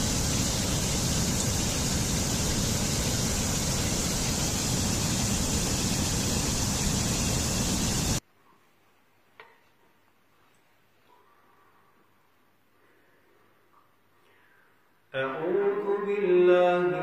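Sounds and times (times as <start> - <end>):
stream rushing over rocks: 0.0 - 8.2.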